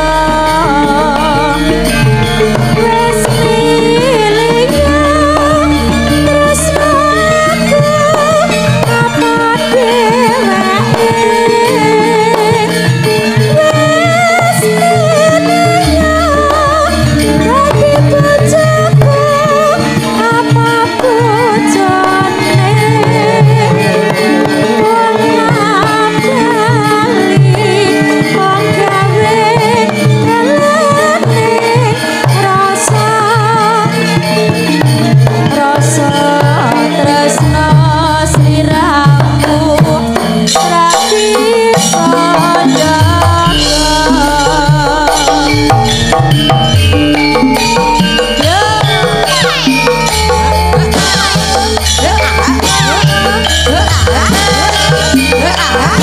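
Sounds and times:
gamelan ensemble: 0.0 - 56.0
hand drum strokes: 0.0 - 56.0
woman singing: 0.0 - 56.0.

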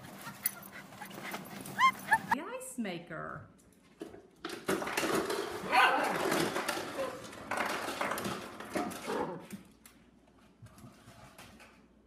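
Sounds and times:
dog whining and yipping: 0.0 - 2.4.

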